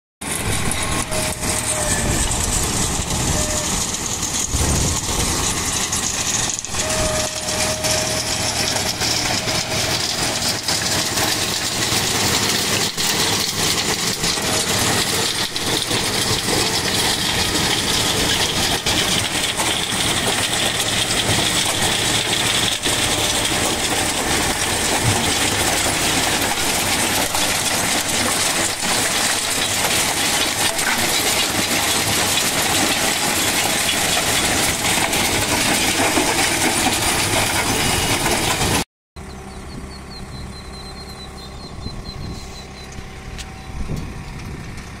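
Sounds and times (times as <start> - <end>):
tractor diesel engine running: 0.2 - 45.0.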